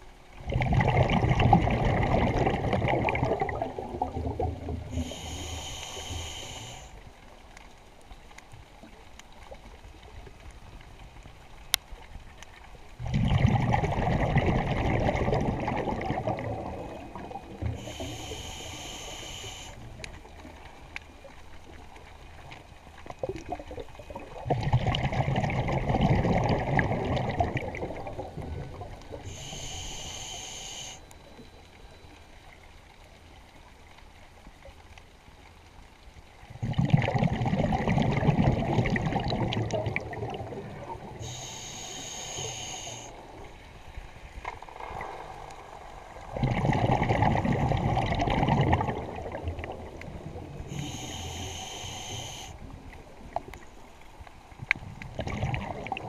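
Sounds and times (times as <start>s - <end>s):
exhaled bubbles rushing: 0.4s - 5.2s, 13.0s - 18.0s, 23.2s - 29.3s, 36.5s - 41.3s, 44.3s - 50.8s, 54.9s - 56.0s
regulator inhalation hiss: 4.9s - 7.0s, 17.7s - 19.9s, 29.2s - 31.1s, 41.2s - 43.2s, 50.7s - 52.6s.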